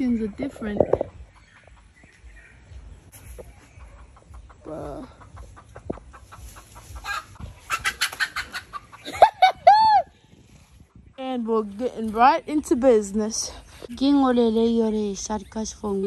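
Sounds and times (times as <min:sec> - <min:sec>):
chickens clucking: 0:00.1 - 0:11.6.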